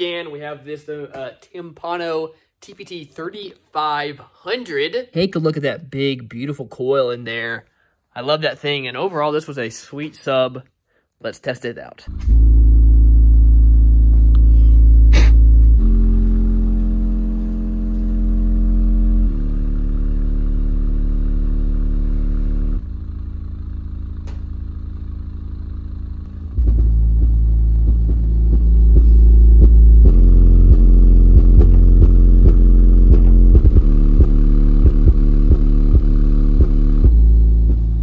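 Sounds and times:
deep subwoofer bass notes: 12.1s - 38.0s.

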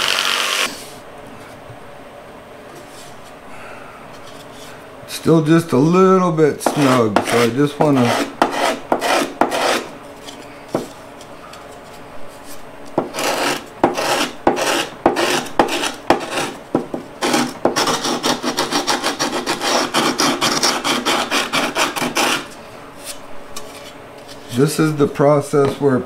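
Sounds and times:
wood sanding rasp: 6.6s - 9.9s, 13.0s - 16.6s, 17.2s - 22.5s.

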